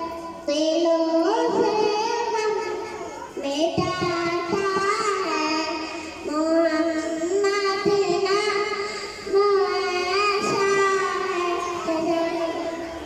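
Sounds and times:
girl singing into a microphone: 0.0s - 13.0s.

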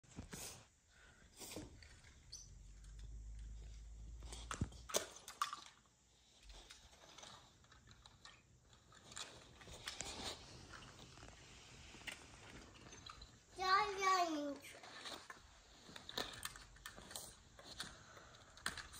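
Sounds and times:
toy cars clicking together: 4.3s - 11.0s, 14.5s - 18.9s.

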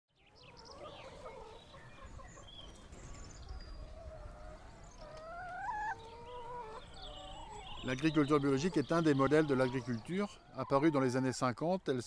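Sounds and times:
hens clucking: 0.4s - 3.0s, 3.8s - 12.0s.

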